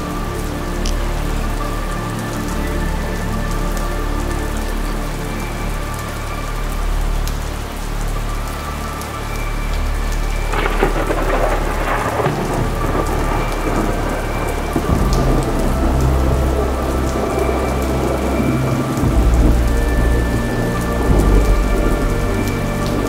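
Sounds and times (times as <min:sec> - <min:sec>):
steady rain falling: 0:00.0 - 0:23.0
rolling thunder rumble: 0:10.5 - 0:23.0
thunder crack: 0:10.5 - 0:23.0.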